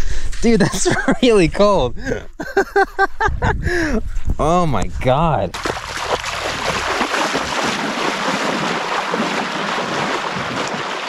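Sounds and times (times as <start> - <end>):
wind noise on microphone: 3.0 - 11.0
water splashing from wading: 5.5 - 11.0.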